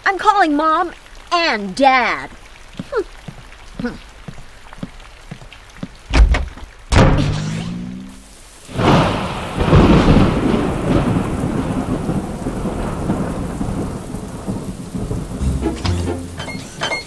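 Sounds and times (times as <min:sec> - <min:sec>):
heavy rain: 0:00.0 - 0:17.0
thunder rumble: 0:08.7 - 0:17.0
thunderclap: 0:08.7 - 0:17.0.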